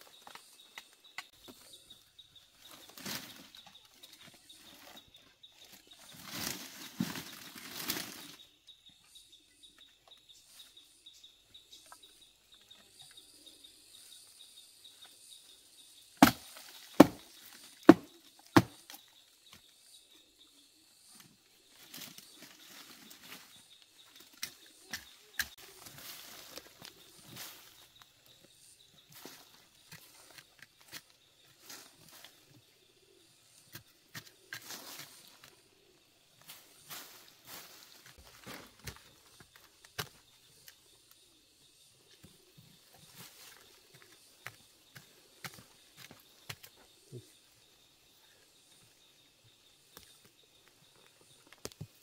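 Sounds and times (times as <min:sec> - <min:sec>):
rustling through undergrowth: 0:00.0 - 0:08.8, 0:21.6 - 0:32.6, 0:34.3 - 0:40.6.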